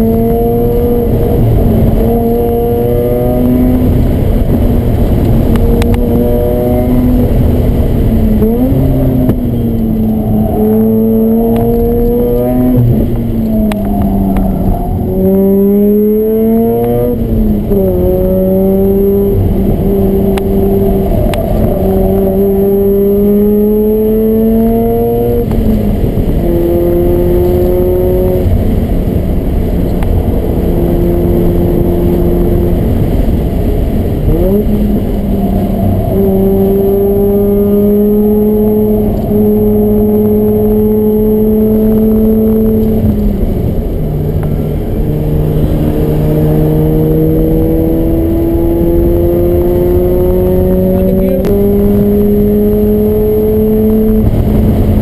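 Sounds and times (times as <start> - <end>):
rotary engine revving through gears: 45.4 - 54.4.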